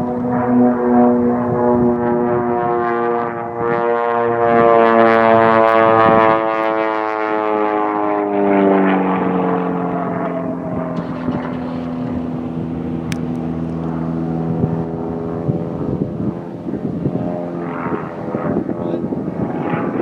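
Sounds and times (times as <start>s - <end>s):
propeller plane engine droning: 0.0s - 20.0s.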